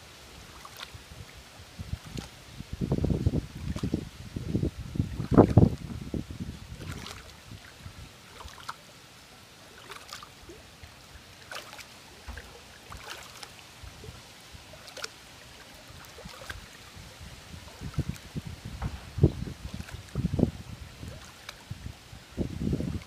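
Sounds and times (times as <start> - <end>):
pool water lapping and splashing: 0.0 - 23.0
wind buffeting microphone: 1.1 - 8.2, 15.9 - 23.0.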